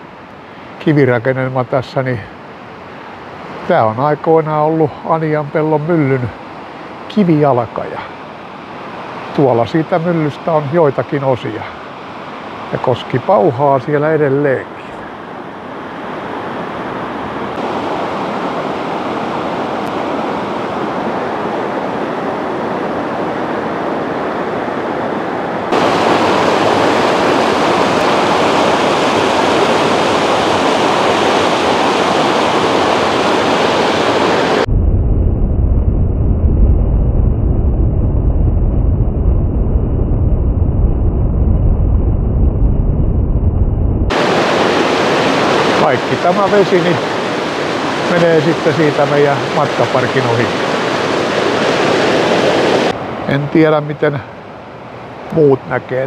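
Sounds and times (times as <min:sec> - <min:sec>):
river rapids roaring: 0:02.3 - 0:34.7, 0:44.1 - 0:55.9
deep dull rumble: 0:34.7 - 0:44.1.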